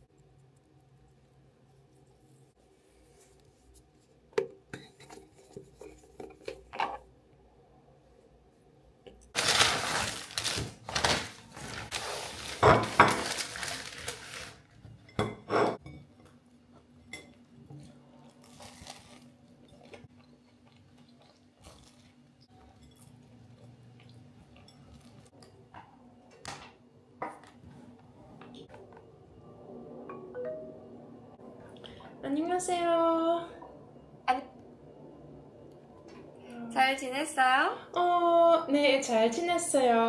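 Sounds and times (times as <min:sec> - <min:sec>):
paper bag rustling and crinkling: 0:09.4 - 0:14.8, 0:18.4 - 0:19.4.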